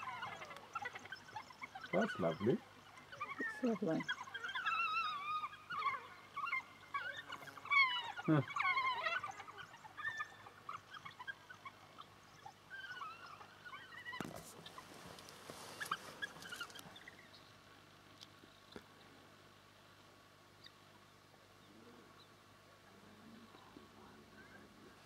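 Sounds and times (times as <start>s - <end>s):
wild dogs twittering: 0.0s - 17.3s.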